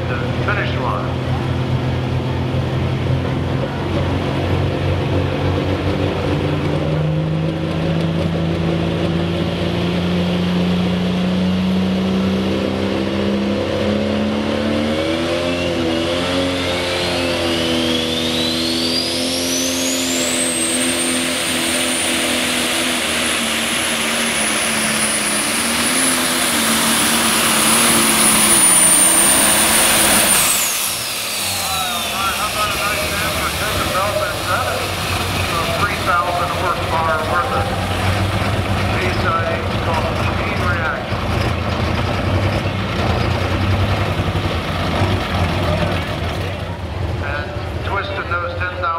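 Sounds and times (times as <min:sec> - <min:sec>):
diesel engine at high revs: 0:00.0 - 0:48.9
turbo whine screaming: 0:27.6 - 0:34.1.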